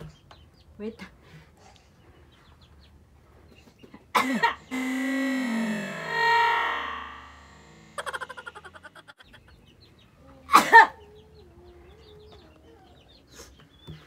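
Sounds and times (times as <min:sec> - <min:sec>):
woman laughing: 0:07.8 - 0:09.6.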